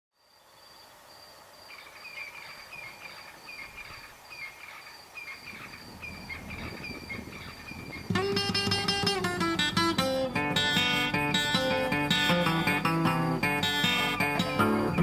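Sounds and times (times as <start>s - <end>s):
small creatures chirping: 1.7s - 9.2s.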